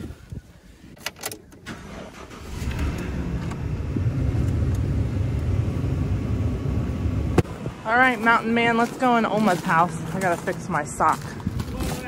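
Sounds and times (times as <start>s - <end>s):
truck engine starting and running: 0.2s - 11.7s.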